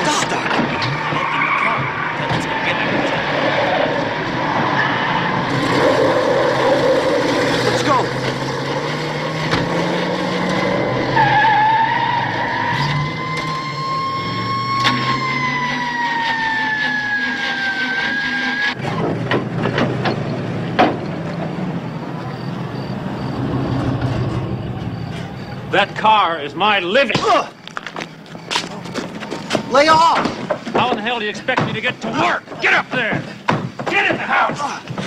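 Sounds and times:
car engines rumbling: 0.0s - 35.0s
long high squeal: 11.2s - 18.8s, 22.0s - 26.5s
sharp knocks: 29.4s - 35.0s.

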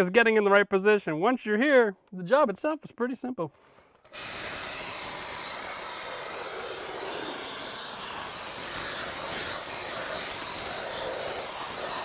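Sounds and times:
spray foam gun hissing: 4.0s - 12.0s.

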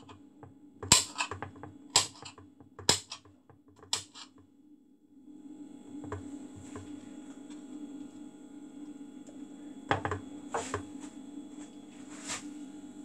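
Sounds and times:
steady low hum: 0.0s - 13.0s
knife chopping on a board: 0.8s - 3.2s, 3.8s - 4.3s.

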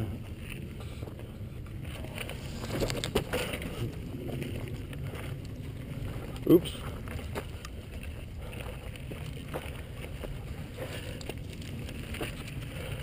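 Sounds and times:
bike rattling: 0.0s - 13.0s
bike tyres crunching over rock: 0.0s - 13.0s
wind rumble on microphone: 0.0s - 13.0s.

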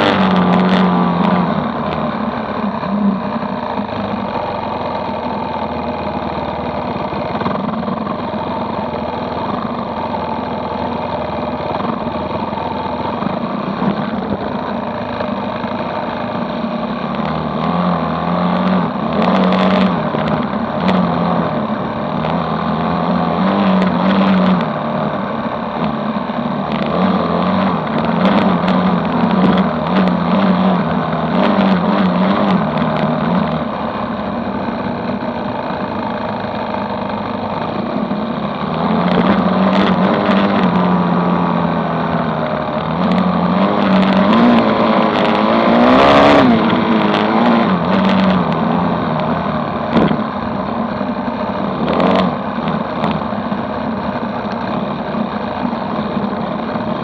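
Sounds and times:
dirt bike engine revving: 0.0s - 57.0s
sharp knocks and buffets: 49.8s - 50.6s.

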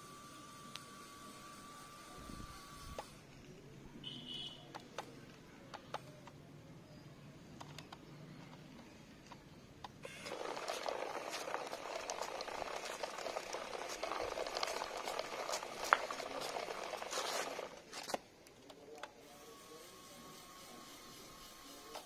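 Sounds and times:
toy tractor rattling over concrete: 10.0s - 18.2s.

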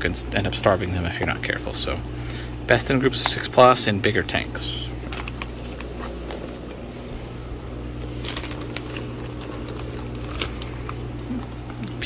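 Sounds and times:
low hum: 4.2s - 12.0s
plastic bags crinkling: 8.0s - 12.0s.

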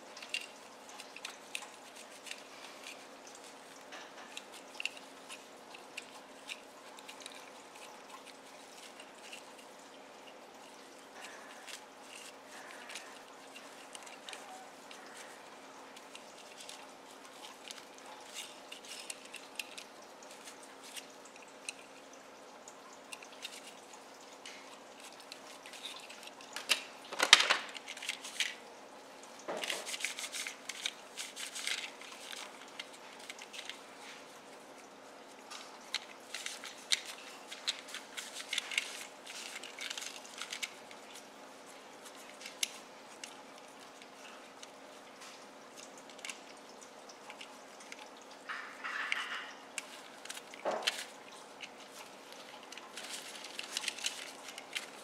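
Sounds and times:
cloth rubbing plastic parts: 0.0s - 22.0s, 29.5s - 34.8s, 35.4s - 44.8s, 48.5s - 55.0s
faint steady hum: 0.0s - 55.0s.

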